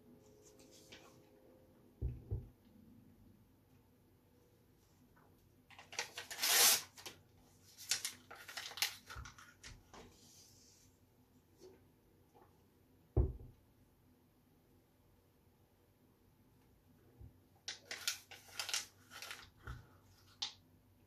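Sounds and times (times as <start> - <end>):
paper rustling and tearing: 5.8 - 9.6, 17.7 - 19.6
dull thump: 13.2 - 13.5.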